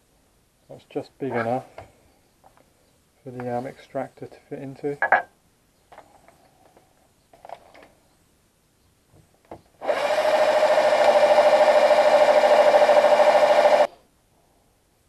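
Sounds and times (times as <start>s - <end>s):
cordless drill whining: 9.8s - 13.9s.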